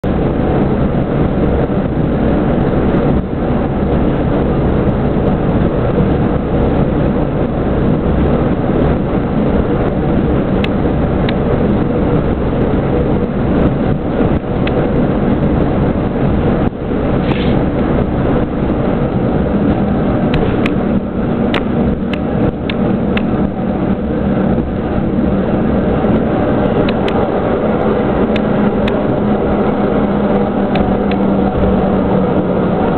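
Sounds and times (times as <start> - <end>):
diesel engine drone: 0.0 - 32.9
wheel and rail noise: 0.0 - 32.9.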